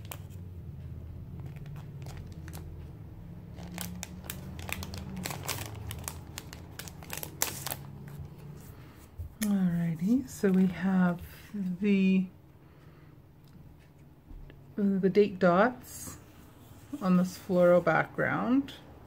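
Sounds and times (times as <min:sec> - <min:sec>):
plastic sleeve crinkling: 0:00.0 - 0:00.4, 0:01.3 - 0:02.9, 0:03.5 - 0:08.5
low steady hum: 0:00.0 - 0:19.0.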